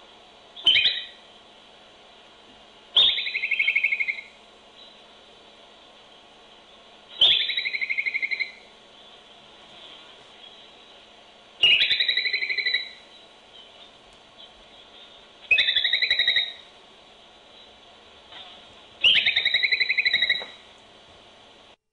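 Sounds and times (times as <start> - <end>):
groundhog alarm whistle: 0.6 - 1.2, 11.6 - 13.0, 15.5 - 16.6, 19.0 - 20.6.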